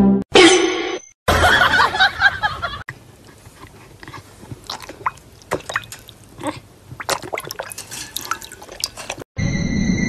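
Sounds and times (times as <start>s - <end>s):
dog splashing in water bowl: 4.3s - 9.2s.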